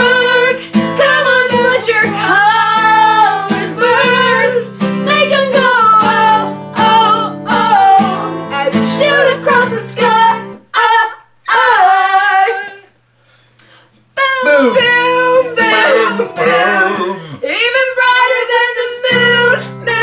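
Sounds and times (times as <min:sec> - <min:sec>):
people singing: 0:00.0 - 0:12.9, 0:14.2 - 0:20.0
guitar: 0:00.0 - 0:20.0.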